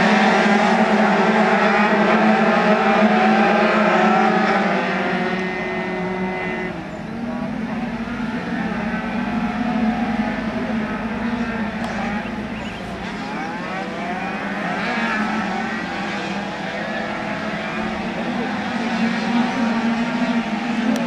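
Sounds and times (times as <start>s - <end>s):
scooter engines whining: 0.0s - 21.0s
steady low drone: 0.0s - 21.0s.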